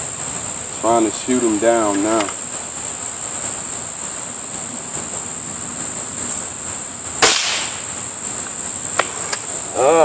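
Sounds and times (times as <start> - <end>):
insects droning: 0.0 - 10.0
air rifle shot crack: 7.2 - 7.9.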